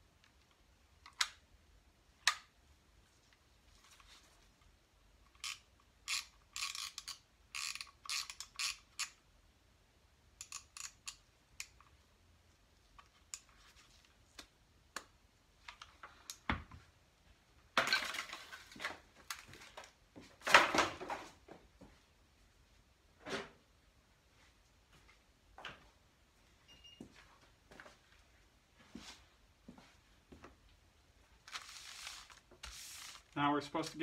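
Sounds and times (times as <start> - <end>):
scraping rustling noises: 31.4 - 34.0.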